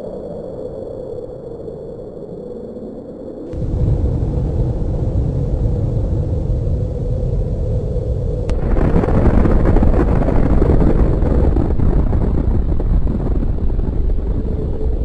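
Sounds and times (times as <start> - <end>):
explosion roar: 3.5 - 15.0
sharp crack: 8.4 - 14.9.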